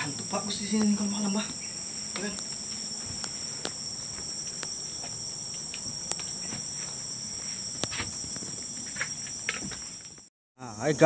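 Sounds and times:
chorus of forest insects: 0.0s - 11.0s
sharp clicks: 0.7s - 3.8s, 4.4s - 6.4s.

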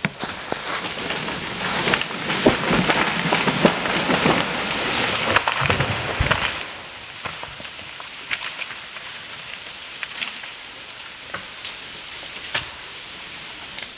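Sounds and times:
branches crackling and snapping: 0.0s - 13.9s
leaves rustling: 0.0s - 13.9s
tree trunk thudding on ground: 2.3s - 7.4s.

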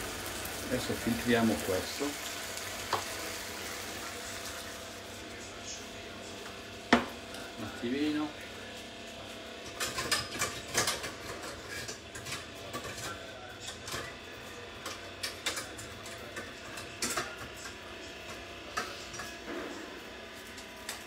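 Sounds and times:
kitchen utensils clattering: 9.7s - 19.6s.

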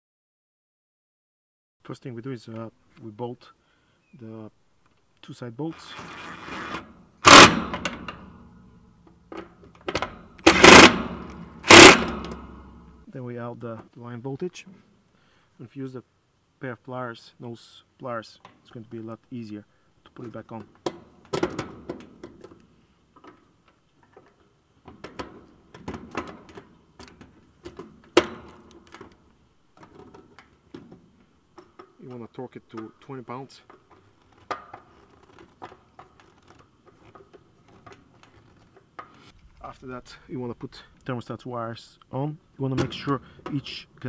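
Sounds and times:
cordless drill running: 6.0s - 7.8s, 10.4s - 12.4s
hand tools clicking on metal: 9.9s - 12.6s.

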